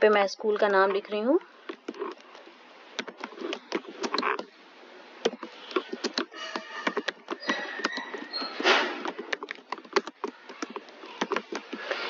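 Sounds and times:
computer keyboard typing: 5.2s - 12.0s.

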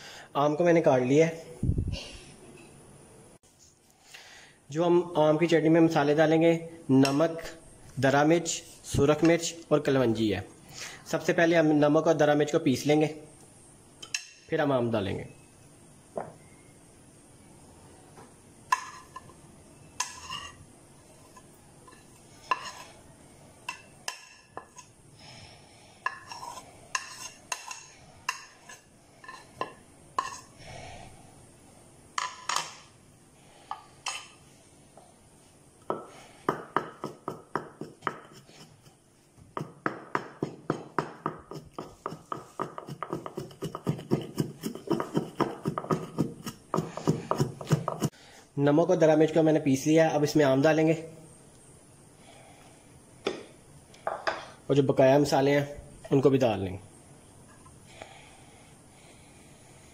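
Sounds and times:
pestle pounding in stone mortar: 35.9s - 38.9s, 39.5s - 48.1s.

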